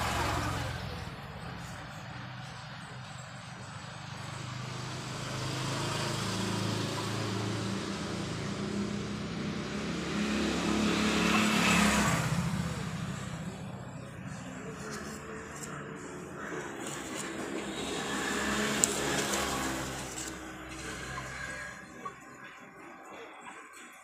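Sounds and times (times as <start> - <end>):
road noise: 0.0 - 24.0
vehicle engine hum: 0.0 - 24.0.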